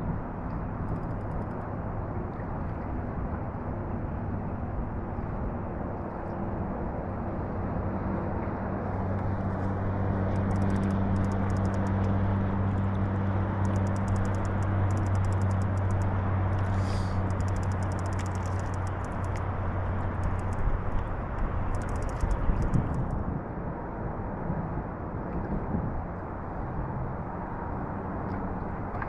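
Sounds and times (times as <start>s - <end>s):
choppy lake water: 0.0s - 29.0s
low motor hum: 0.0s - 29.0s
faint rapid ticking: 10.3s - 12.1s, 13.6s - 19.4s, 20.1s - 21.1s, 21.7s - 23.1s.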